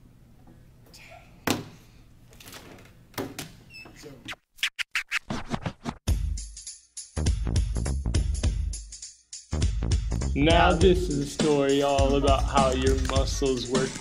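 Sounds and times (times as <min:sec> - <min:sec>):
record scratches: 0:04.3 - 0:06.0
music: 0:06.1 - 0:14.0.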